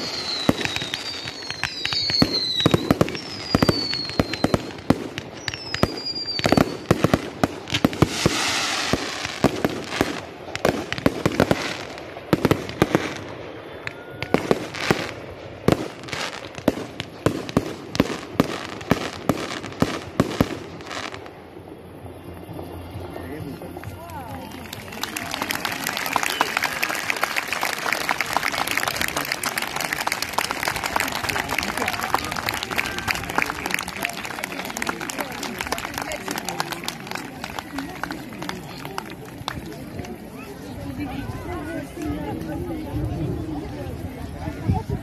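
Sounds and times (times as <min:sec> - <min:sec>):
falling firework whistles: 0:00.0 - 0:21.4
fireworks bangs and crackles: 0:00.0 - 0:45.0.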